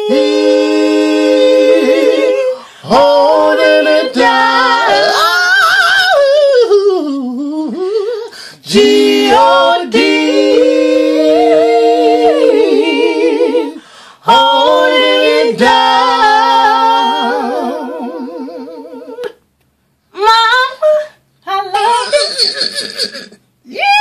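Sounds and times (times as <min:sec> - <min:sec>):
women singing in harmony: 0:00.0 - 0:19.4
short vocal sound: 0:22.0 - 0:23.5.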